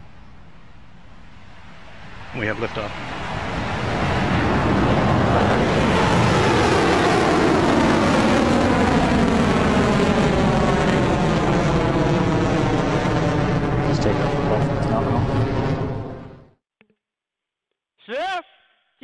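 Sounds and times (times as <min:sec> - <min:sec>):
rocket engines roaring: 0:00.0 - 0:16.5.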